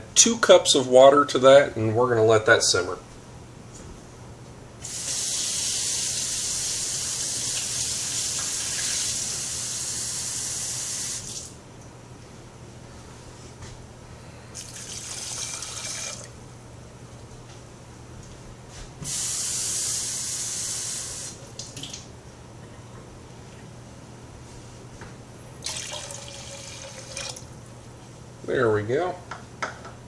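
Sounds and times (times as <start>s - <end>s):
kitchen tap running: 4.8s - 11.5s, 14.6s - 16.3s, 25.6s - 27.5s.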